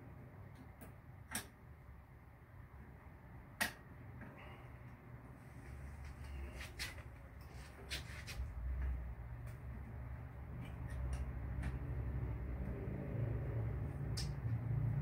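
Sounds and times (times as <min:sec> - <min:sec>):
clothing brushing microphone: 0:05.5 - 0:08.6
light clicks and taps of parts: 0:10.5 - 0:12.8.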